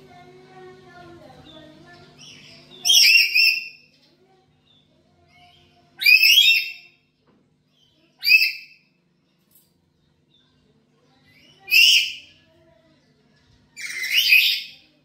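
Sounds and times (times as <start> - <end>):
parrot harsh calls: 2.8 - 3.8, 6.0 - 6.9, 8.2 - 8.8, 11.6 - 12.3, 13.8 - 14.8.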